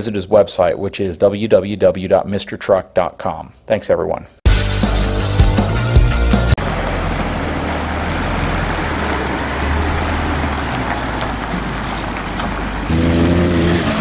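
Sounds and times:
music: 4.4 - 6.6, 13.5 - 14.0
truck engine rumbling: 4.6 - 14.0
loud engine: 5.7 - 14.0
outdoor noise: 6.2 - 14.0.

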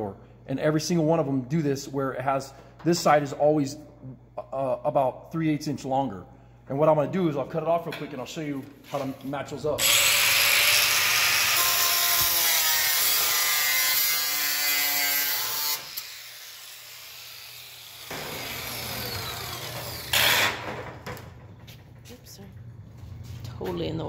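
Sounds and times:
angle grinder cutting steel: 9.8 - 20.6.

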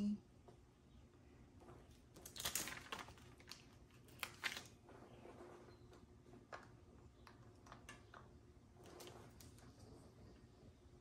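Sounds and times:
small plastic bags crinkling: 1.9 - 4.8.

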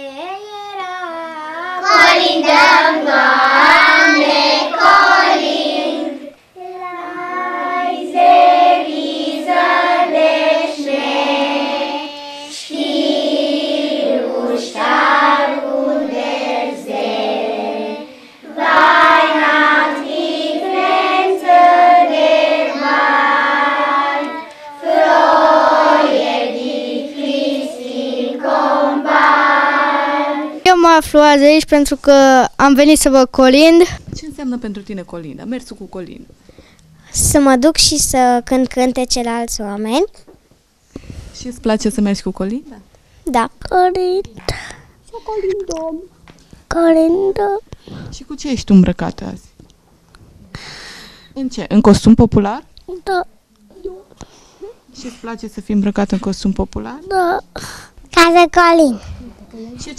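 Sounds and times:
children singing a carol: 1.4 - 30.6.

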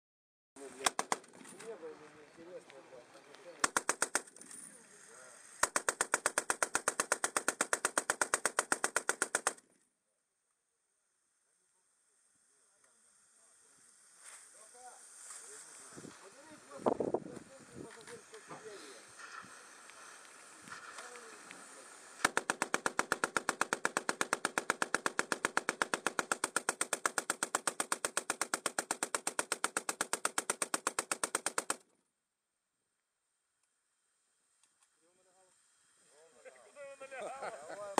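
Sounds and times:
machine gun firing bursts: 3.6 - 4.3, 5.6 - 9.6, 22.2 - 31.8.

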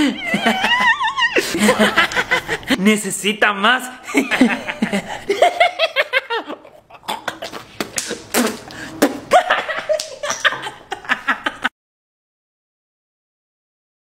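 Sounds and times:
loud laughter: 0.0 - 2.8, 9.3 - 11.7.

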